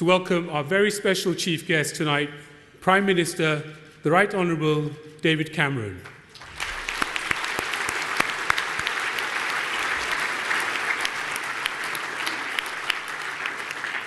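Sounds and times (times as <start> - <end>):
audience applauding: 6.3 - 14.0.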